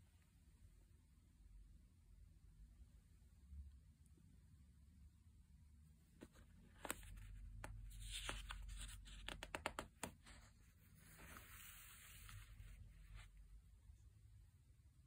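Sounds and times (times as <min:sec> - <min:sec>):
paper pages turning: 0:06.2 - 0:13.3.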